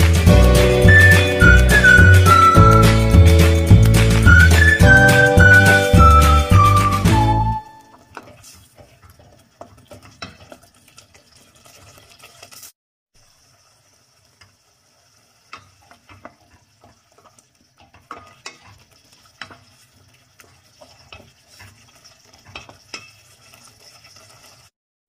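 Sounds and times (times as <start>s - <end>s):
sauce sizzling: 0.0s - 24.7s
wooden spoon stirring sauce: 8.0s - 12.6s, 14.2s - 24.7s
spoon scraping and knocking a pot: 22.4s - 23.3s.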